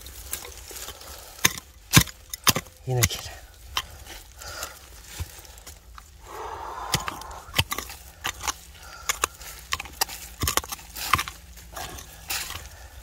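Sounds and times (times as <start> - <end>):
hard objects knocking and clacking: 6.9 - 12.6.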